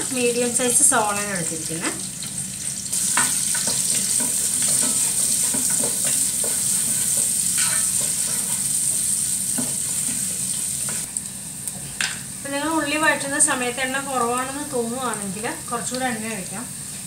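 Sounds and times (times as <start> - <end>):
onions sizzling in hot oil: 0.0 - 17.0
wooden spatula scraping pan: 3.0 - 11.1.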